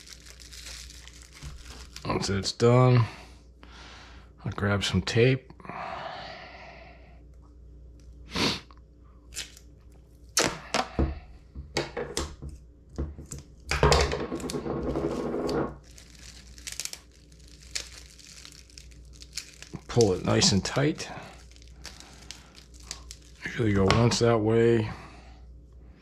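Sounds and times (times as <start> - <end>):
tape ripping off roll: 10.4 - 10.9, 14.0 - 23.5.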